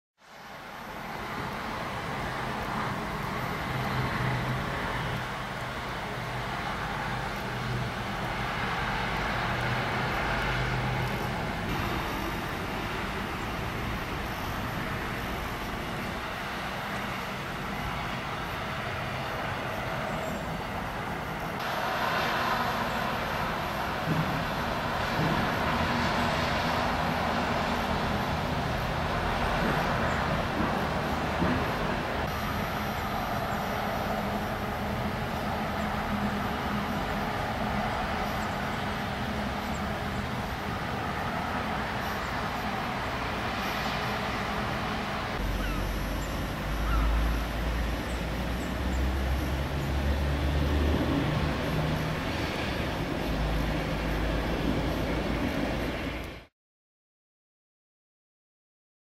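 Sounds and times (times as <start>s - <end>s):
distant city traffic: 0.2s - 56.5s.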